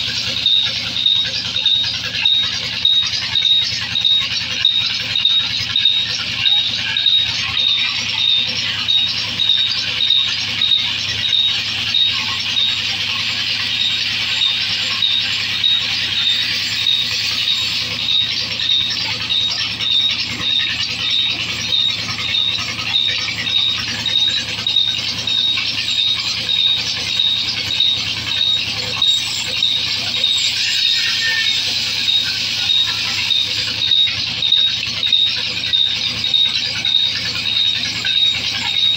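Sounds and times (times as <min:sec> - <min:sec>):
high pulsing squeal: 0:00.0 - 0:38.9
band saw cutting logs: 0:05.8 - 0:35.3.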